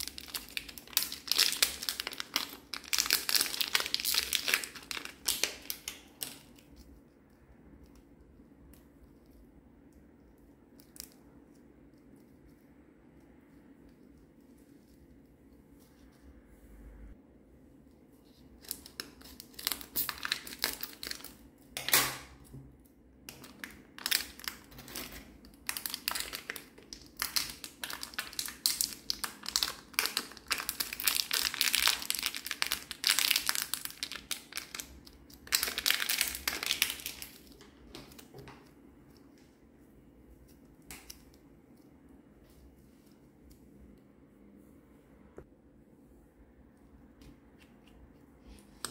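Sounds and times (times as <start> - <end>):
plastic packet crinkling: 0.0 - 6.7, 18.6 - 21.4, 23.3 - 38.3.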